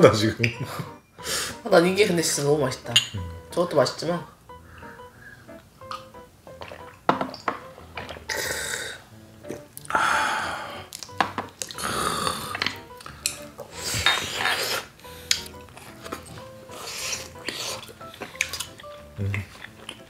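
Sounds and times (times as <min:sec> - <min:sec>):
soft background music: 0:00.0 - 0:20.0
breathy eating mouth sounds: 0:08.0 - 0:20.0.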